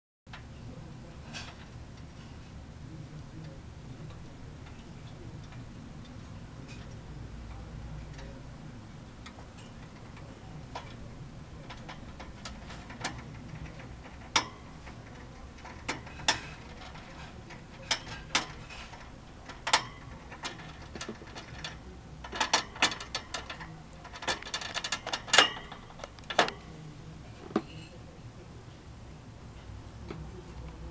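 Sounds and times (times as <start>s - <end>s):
wire cage door rattling: 9.5s - 26.7s.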